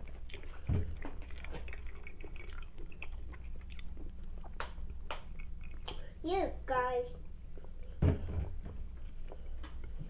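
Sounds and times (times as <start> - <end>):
person chewing: 0.0 - 6.2.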